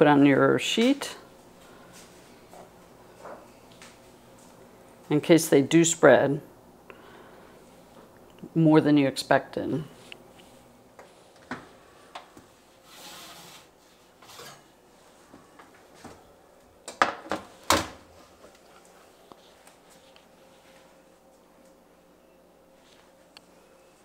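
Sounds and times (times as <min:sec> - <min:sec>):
baking sheet scraping oven rack: 0:12.8 - 0:14.8.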